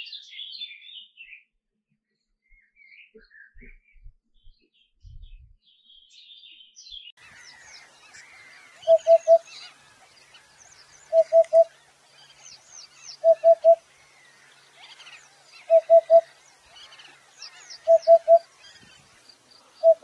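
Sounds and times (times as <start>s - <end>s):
small birds twittering: 0.0s - 1.5s, 2.4s - 20.0s
loud low bird call: 7.3s - 9.7s, 11.0s - 11.7s, 13.1s - 13.8s, 15.6s - 16.3s, 17.6s - 18.5s, 19.8s - 20.0s.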